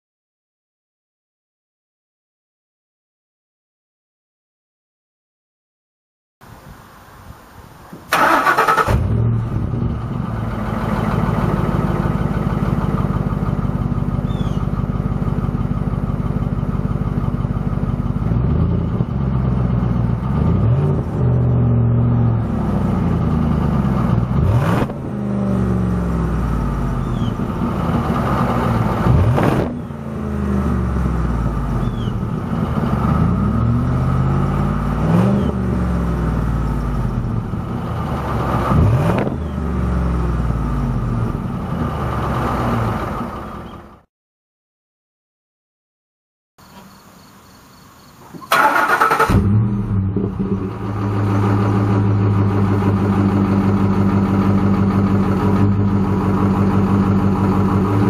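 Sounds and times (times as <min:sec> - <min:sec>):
engine cranking: 0:08.1 - 0:09.2, 0:48.4 - 0:49.8
engine revving: 0:08.1 - 0:15.7, 0:17.4 - 0:44.0, 0:48.5 - 0:58.0
truck engine idling: 0:08.2 - 0:20.4, 0:21.1 - 0:38.8, 0:39.4 - 0:44.1, 0:48.3 - 0:58.0.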